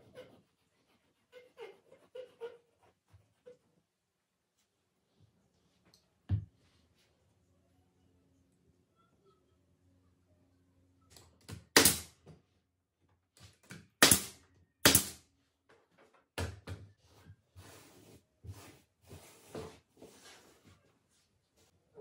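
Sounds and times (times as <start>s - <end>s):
scraping and shuffling: 17.0s - 21.9s.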